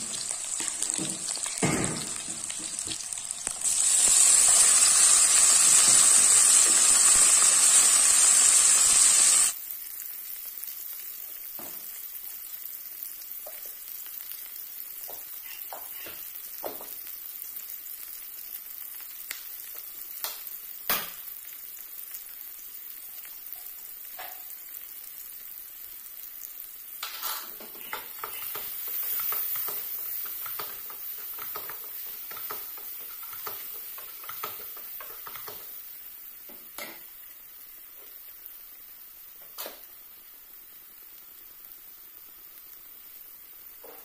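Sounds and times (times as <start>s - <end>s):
vegetables sizzling in oil: 0.0s - 44.0s
spatula scraping wok: 27.1s - 35.7s.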